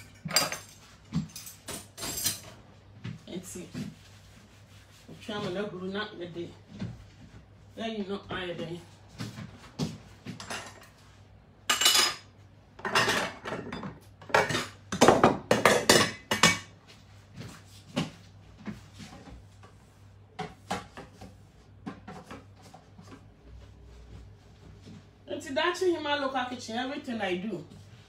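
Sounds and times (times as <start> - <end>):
pots and utensils clanking: 0.0 - 2.6, 10.4 - 11.0, 11.7 - 16.8.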